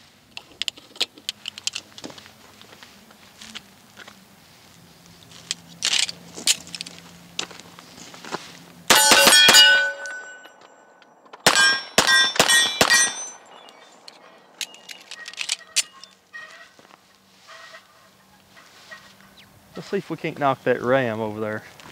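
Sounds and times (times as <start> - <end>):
pistol shots: 8.9 - 10.5, 11.4 - 15.9
steel plates clanging: 8.9 - 16.1.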